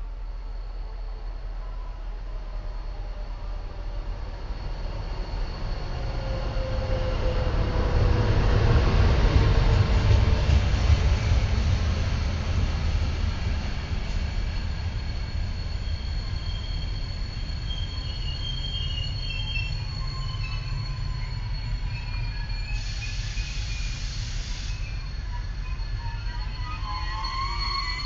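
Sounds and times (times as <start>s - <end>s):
train rumbling: 0.0s - 28.0s
wheel and brake squeals: 13.3s - 28.0s.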